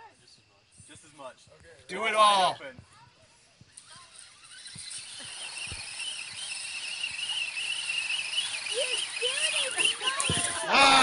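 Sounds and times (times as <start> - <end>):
toy truck electric motor whine: 3.7 - 11.0.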